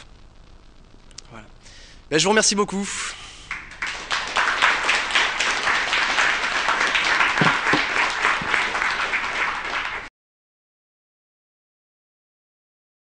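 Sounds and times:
audience applause: 3.5s - 10.1s.

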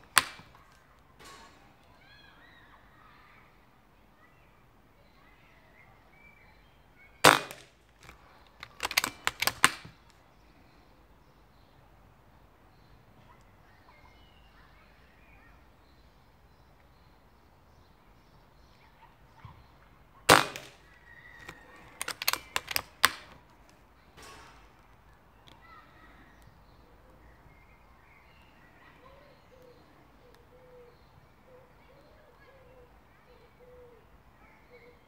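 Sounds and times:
air rifle shot: 0.0s - 0.6s, 7.2s - 7.8s, 8.7s - 10.0s, 20.3s - 23.4s
metallic clicks of rifle action: 0.0s - 1.6s, 7.2s - 10.2s, 20.3s - 25.6s
faint birdsong: 0.0s - 35.0s.

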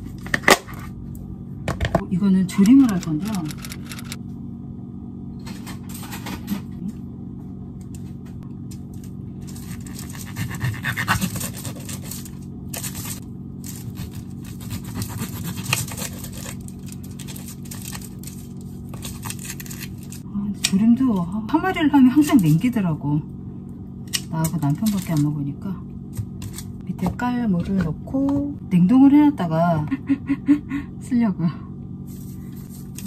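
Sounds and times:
steady low hum: 0.0s - 33.0s
knife cutting fish on foil: 11.1s - 20.2s.

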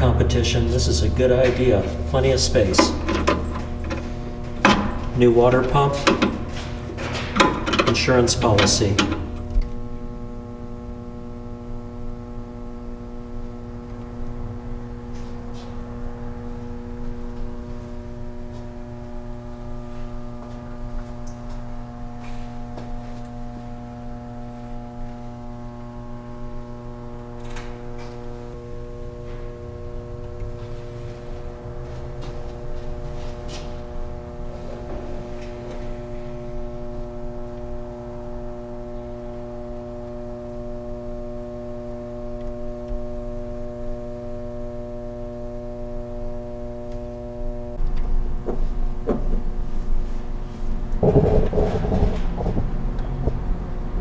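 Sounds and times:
steady low hum: 0.0s - 54.0s.

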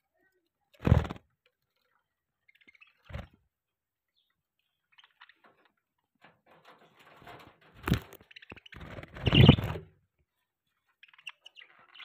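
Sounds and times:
budgerigars chirping: 8.3s - 9.7s.

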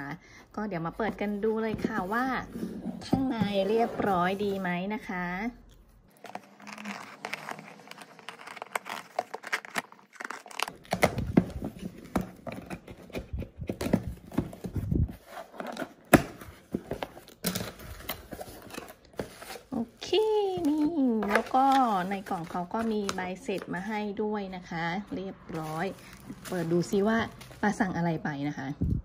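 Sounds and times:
bubble wrap crinkling: 5.6s - 13.0s
plastic mailer tearing: 6.1s - 11.7s.

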